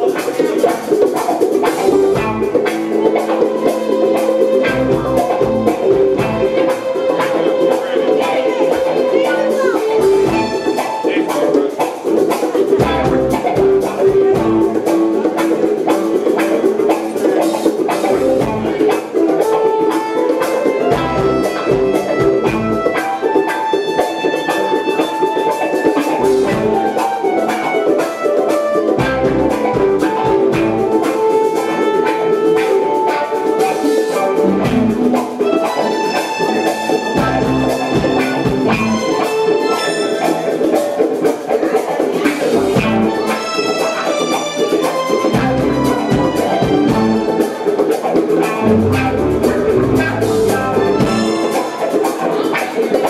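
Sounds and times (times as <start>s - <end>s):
live band playing rnb: 0.0s - 53.0s
bass line: 1.6s - 3.0s, 4.1s - 7.0s, 9.0s - 10.8s, 12.8s - 15.1s, 17.9s - 19.0s, 20.8s - 23.0s, 26.0s - 27.0s, 28.9s - 31.1s, 34.1s - 35.4s, 37.0s - 39.2s, 42.4s - 43.3s, 45.3s - 47.4s, 48.5s - 51.6s.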